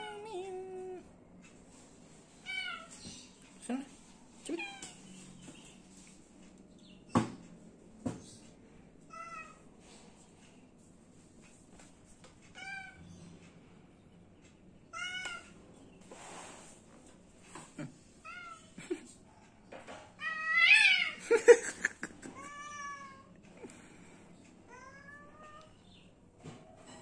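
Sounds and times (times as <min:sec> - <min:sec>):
cat meowing: 0:00.0 - 0:01.0, 0:14.9 - 0:15.5, 0:20.2 - 0:21.2, 0:22.4 - 0:23.3, 0:24.7 - 0:25.8.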